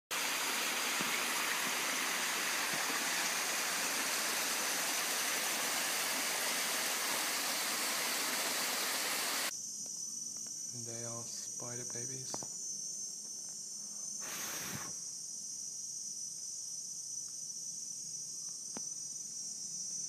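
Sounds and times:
stream rushing over rocks: 0.1 - 9.5.

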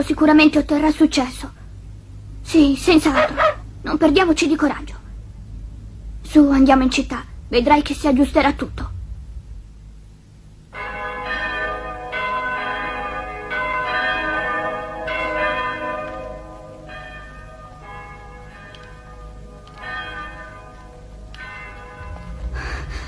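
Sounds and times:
church bells ringing: 10.7 - 23.0.

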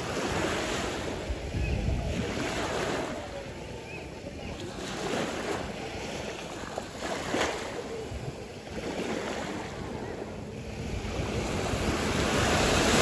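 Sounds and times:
wind buffeting microphone: 0.0 - 6.4
waves washing in: 0.0 - 13.0.

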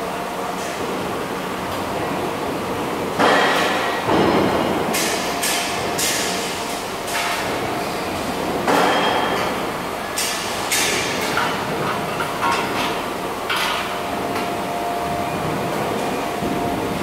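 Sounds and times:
machinery hum: 0.0 - 17.0.

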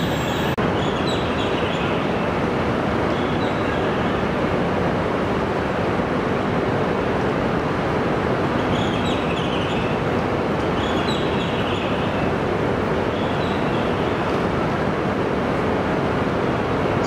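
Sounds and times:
train equipment hum and rush: 0.0 - 17.0.

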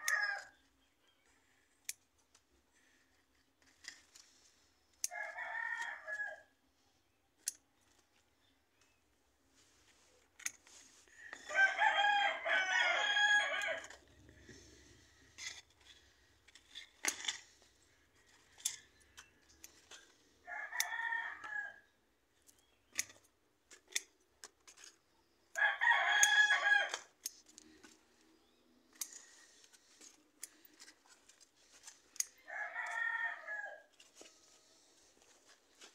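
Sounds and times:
rooster crowing: 0.0 - 0.5, 5.1 - 6.5, 11.4 - 14.3, 20.4 - 21.8, 25.6 - 27.1, 32.4 - 33.9
sharp clicks and rustles: 7.4 - 11.6, 13.6 - 20.9, 22.4 - 25.2, 26.1 - 33.0.

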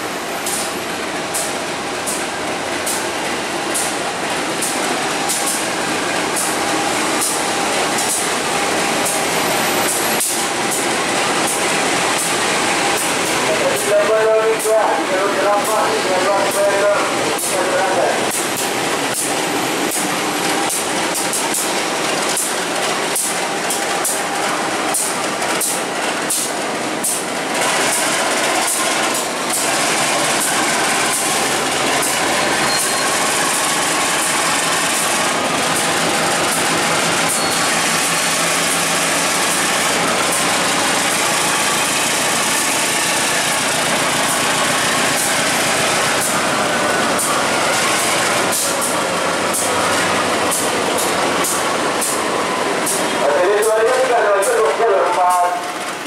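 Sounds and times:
low diesel hum: 0.0 - 56.0
train wheels clacking over rail joints: 0.0 - 56.0
wagons rolling rumble and hiss: 0.0 - 56.0.

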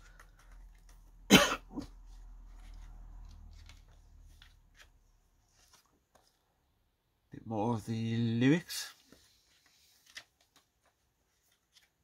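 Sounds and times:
paper rustling: 0.0 - 6.6, 8.7 - 12.0
man coughing: 1.3 - 1.9.

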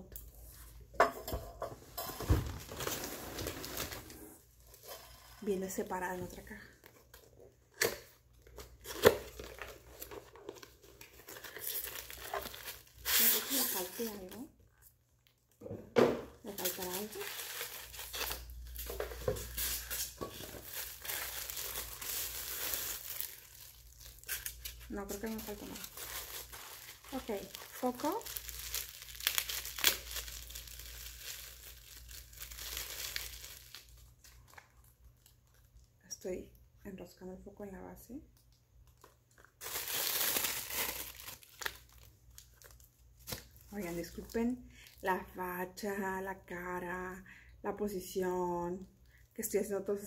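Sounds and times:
plastic wrapping crinkling: 5.6 - 15.6, 16.4 - 35.9, 38.4 - 45.2.

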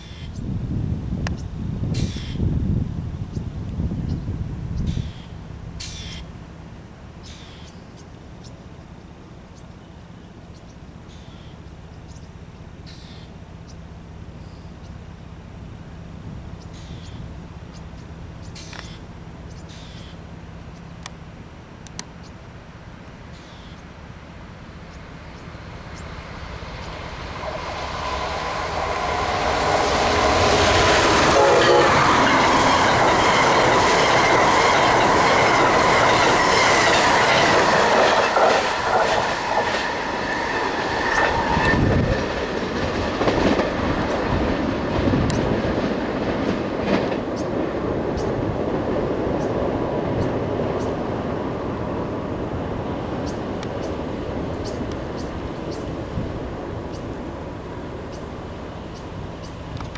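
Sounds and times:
train wheels rumbling on rails: 0.0 - 21.4, 22.0 - 59.9.

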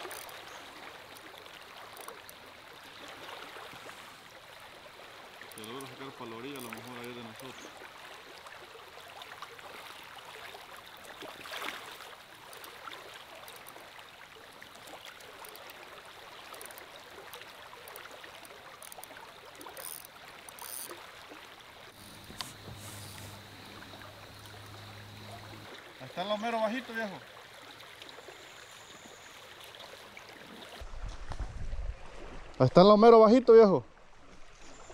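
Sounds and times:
river water rushing: 0.0 - 28.8
low steady hum: 21.9 - 25.8.

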